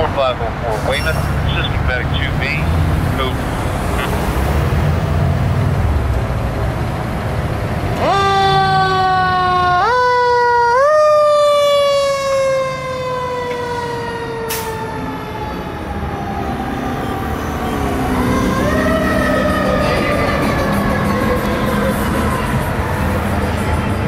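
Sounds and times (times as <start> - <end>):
truck engine rumble: 0.0 - 24.0
fire engine siren: 8.0 - 24.0.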